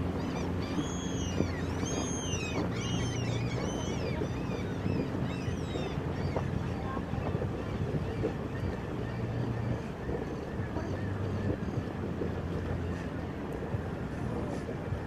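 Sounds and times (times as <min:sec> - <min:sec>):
birds calling: 0:00.0 - 0:11.9
boat engine hum: 0:00.0 - 0:15.0.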